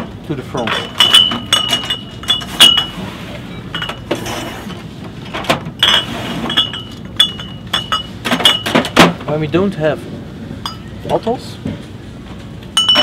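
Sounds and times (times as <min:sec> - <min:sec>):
glass bottles clinking: 0:00.4 - 0:04.4, 0:05.4 - 0:09.2, 0:10.6 - 0:11.2, 0:12.8 - 0:13.0.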